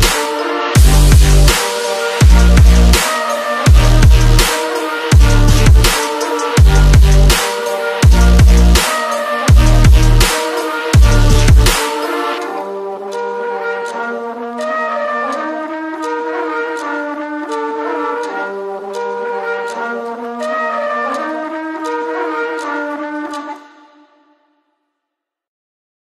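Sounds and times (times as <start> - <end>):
electronic melody of held notes: 0.0 - 24.4
heavy bass hit: 0.8 - 1.6, 2.2 - 3.0, 3.7 - 4.5, 5.1 - 6.0, 6.6 - 7.4, 8.0 - 8.8, 9.5 - 10.3, 11.0 - 11.8.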